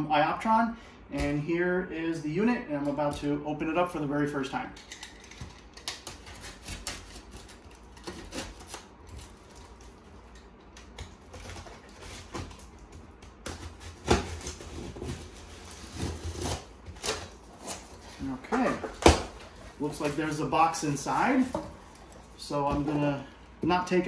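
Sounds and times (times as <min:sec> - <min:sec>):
box cutter slicing tape: 0:13.5 - 0:18.0.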